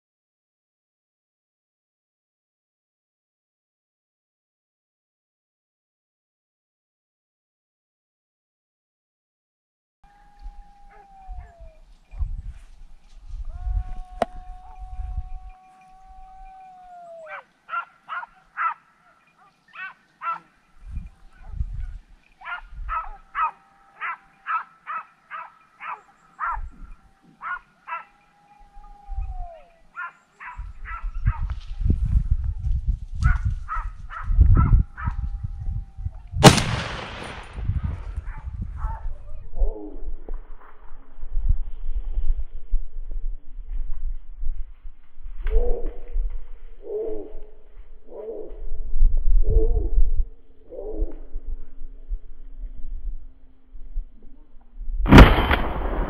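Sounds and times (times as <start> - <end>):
dogs howling: 10.1 - 11.9, 13.6 - 20.5, 22.4 - 31.1, 34.6 - 35.9
hunting dogs barking: 15.5 - 20.7, 22.4 - 28.6, 29.5 - 31.5
gunshot echoing: 36.4 - 38.1, 55.1 - 56.0.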